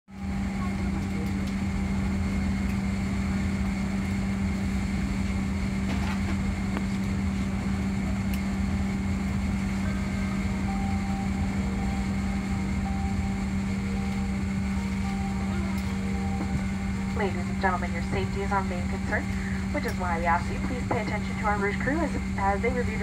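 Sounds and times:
constant low hum: 0.1 - 23.0
aircraft cabin air rush: 0.2 - 23.0.

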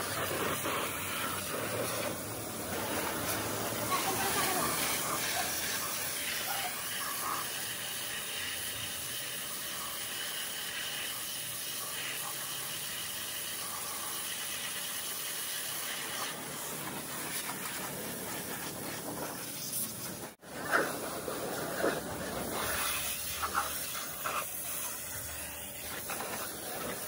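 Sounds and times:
pressure washer spraying water: 0.0 - 27.0.

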